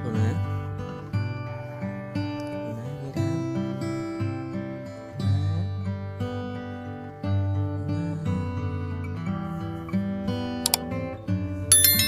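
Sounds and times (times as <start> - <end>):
acoustic guitar playing: 0.0 - 11.8.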